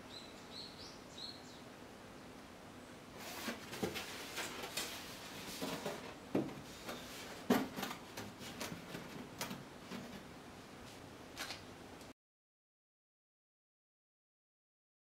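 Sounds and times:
board handling knocks and scrapes: 3.2s - 10.3s.

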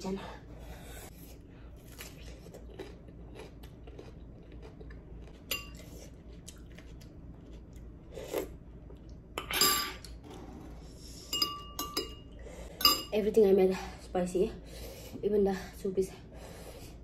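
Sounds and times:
biting and chewing cucumber: 1.1s - 8.5s.

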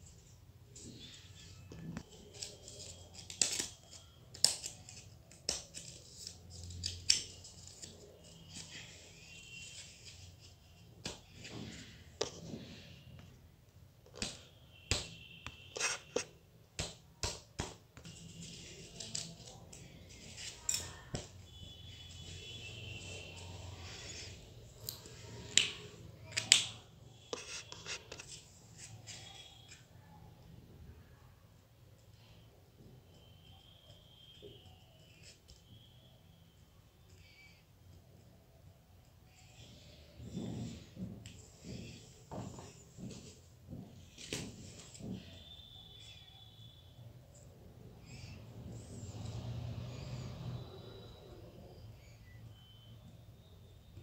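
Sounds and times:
paper rustling: 0.0s - 13.0s, 18.0s - 24.4s
sharp paper crackles: 1.1s - 11.4s.

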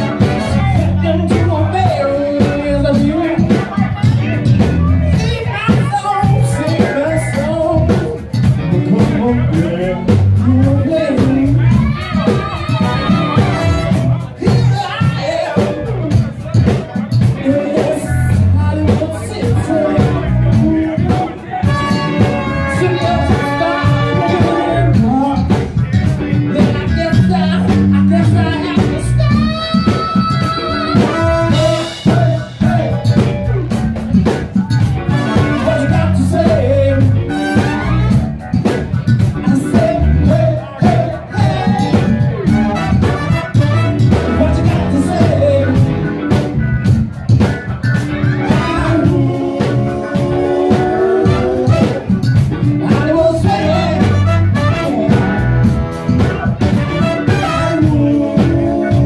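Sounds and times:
horn section: 0.0s - 1.2s, 9.0s - 14.4s, 19.5s - 25.4s, 26.6s - 32.4s, 35.0s - 38.5s, 41.4s - 46.9s, 48.0s - 59.0s
person singing: 0.0s - 46.5s, 47.9s - 59.0s
drum kit: 0.0s - 59.0s
electric guitar: 0.0s - 59.0s
live band playing dance song: 0.0s - 59.0s.

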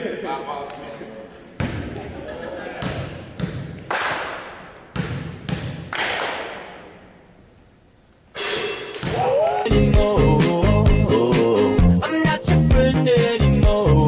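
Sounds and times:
basketball bouncing on hardwood floor: 2.8s - 3.8s, 4.9s - 5.9s.

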